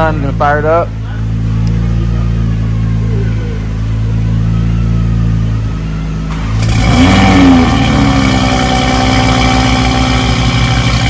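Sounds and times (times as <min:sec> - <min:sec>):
car engine starting and idling: 0:00.0 - 0:11.0
low hum: 0:00.0 - 0:11.0.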